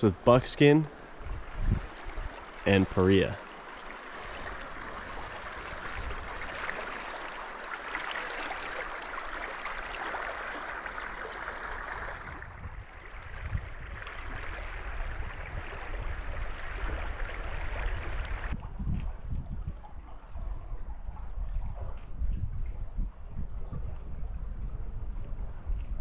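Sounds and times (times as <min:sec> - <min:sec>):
river water rushing: 0:00.0 - 0:12.4.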